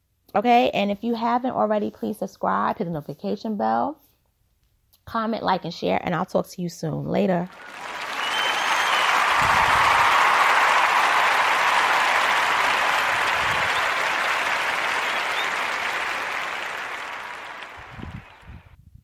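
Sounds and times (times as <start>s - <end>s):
crowd applause: 7.5s - 18.6s.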